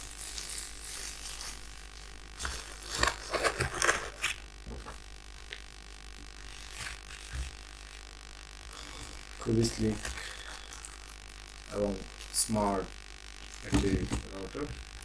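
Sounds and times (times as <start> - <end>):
low steady hum: 0.0 - 15.0
cardboard and paper rustling: 2.4 - 5.0.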